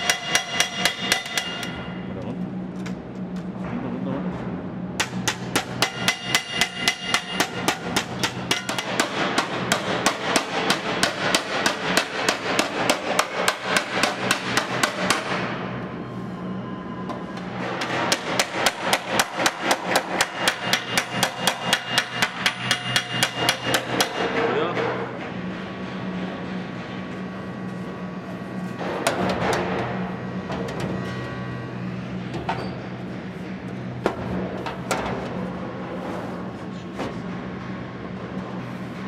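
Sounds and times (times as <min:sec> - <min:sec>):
hammer striking sheet metal: 0:00.0 - 0:02.0, 0:05.0 - 0:15.5, 0:17.7 - 0:25.2.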